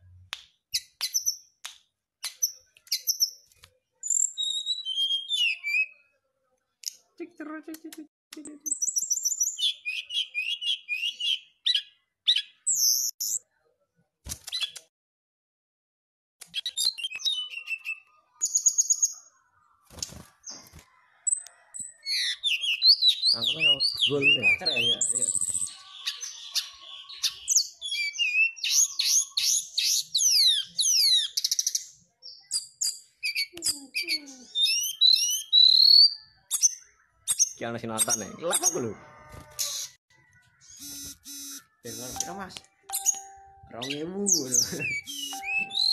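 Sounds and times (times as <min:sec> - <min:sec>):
bird chirping: 0:02.2 - 0:07.5, 0:08.4 - 0:13.5, 0:16.5 - 0:45.9
bird song of sweeping whistles: 0:04.1 - 0:05.9, 0:27.2 - 0:31.8, 0:34.6 - 0:37.5, 0:44.6 - 0:45.9.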